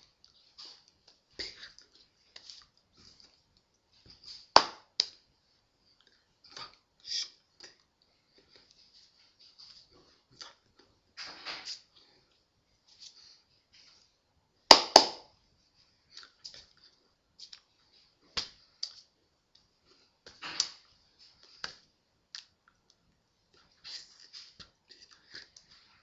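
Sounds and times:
hand slaps: 4.5s - 5.2s, 14.7s - 15.3s.

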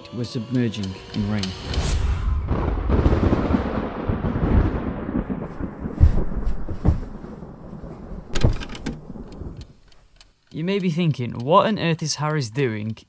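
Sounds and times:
thunder rumbling: 1.2s - 9.9s.

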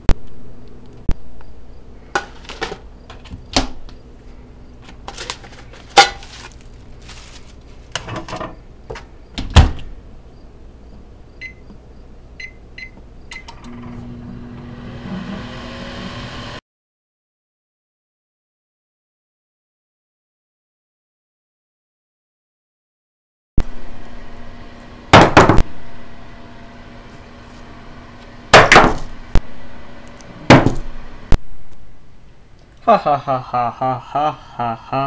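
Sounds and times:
microwave oven humming: 0.0s - 16.6s, 23.6s - 35.0s
keypad beeps: 11.4s - 11.6s, 12.4s - 13.5s.

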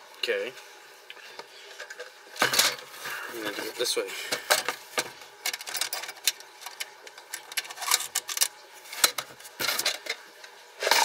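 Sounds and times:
drill bits rattling in plastic case: 7.6s - 10.0s.

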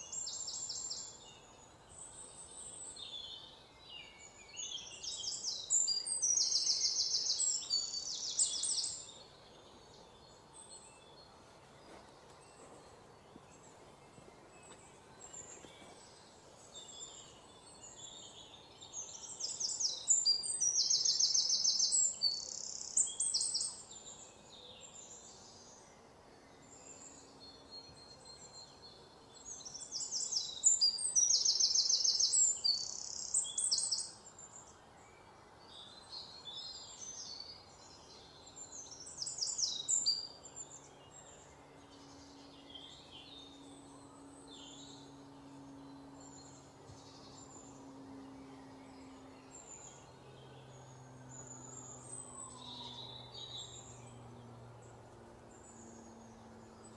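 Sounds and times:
birds chirping in rapid trills: 0.0s - 56.9s.

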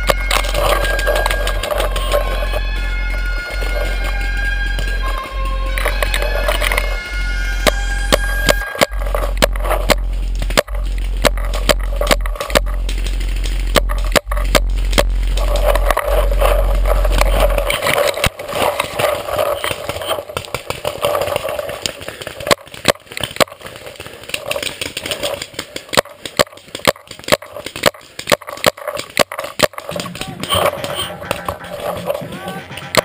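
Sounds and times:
low rumble: 0.0s - 22.1s
dry branches crackling and snapping: 0.0s - 33.0s.

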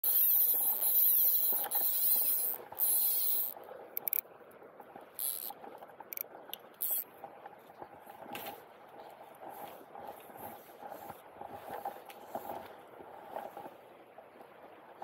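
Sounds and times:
fly reel ratchet buzzing: 0.0s - 4.2s, 5.2s - 5.5s, 6.8s - 7.0s.

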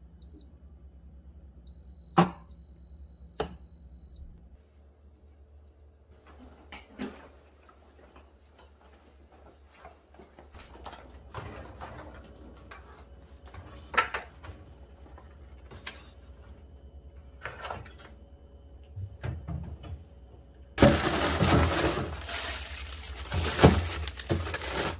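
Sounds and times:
low steady hum: 0.0s - 24.9s
groceries clunking on shelves: 6.2s - 16.6s, 17.2s - 24.9s.

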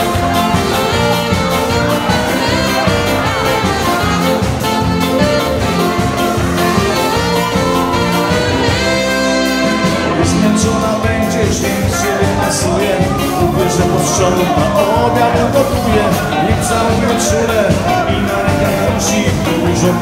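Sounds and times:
horn lead: 0.0s - 20.0s
live band playing dance music: 0.0s - 20.0s.

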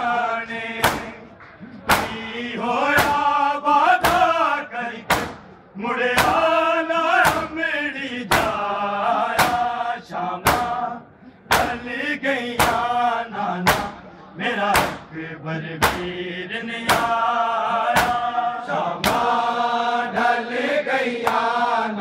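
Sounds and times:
men chanting: 0.0s - 22.0s
hands slapping chests: 0.8s - 2.2s, 5.1s - 5.5s, 21.2s - 21.5s.

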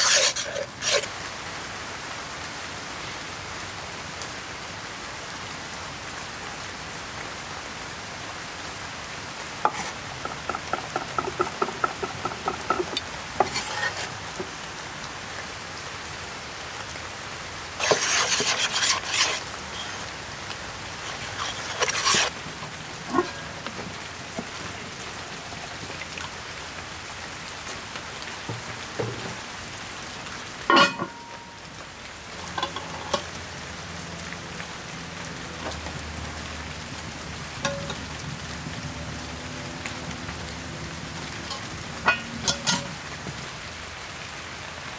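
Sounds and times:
rain hissing: 0.0s - 44.9s
water poured into pot: 21.0s - 23.8s
sharp metal clank: 30.7s - 31.4s.

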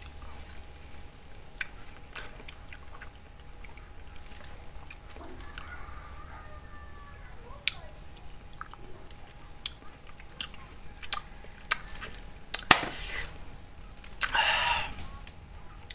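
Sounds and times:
wet chewing and mouth smacks: 1.5s - 5.7s, 7.7s - 12.7s.

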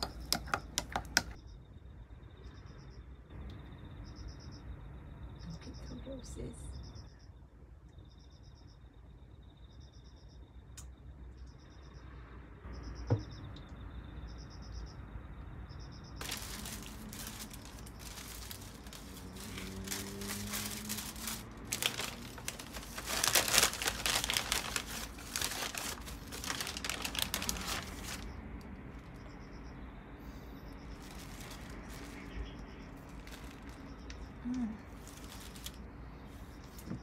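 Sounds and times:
packaging crinkling and rustling: 16.2s - 28.4s, 31.0s - 34.2s, 34.9s - 35.9s.

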